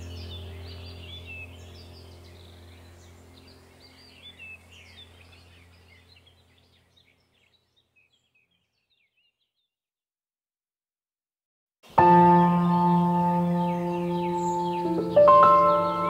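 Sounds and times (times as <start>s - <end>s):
low musical drone: 0.0s - 7.0s, 11.9s - 16.0s
birds chirping: 0.0s - 9.8s, 11.9s - 16.0s.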